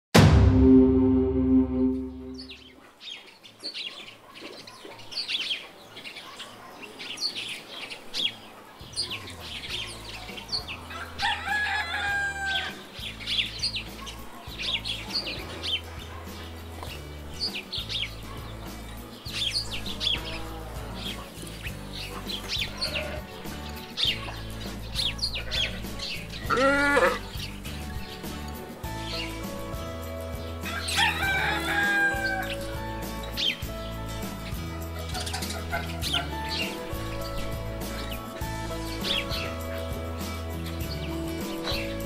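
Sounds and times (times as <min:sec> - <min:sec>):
soft background music: 0:00.2 - 0:42.0
bird chirps: 0:01.5 - 0:10.8
rooster crowing: 0:10.9 - 0:12.8, 0:30.7 - 0:32.6.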